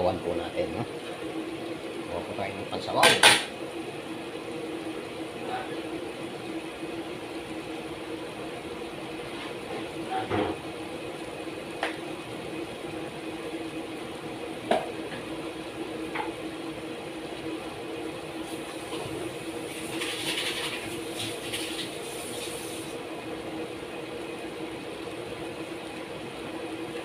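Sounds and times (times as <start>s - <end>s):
machine hum: 0.0s - 27.0s.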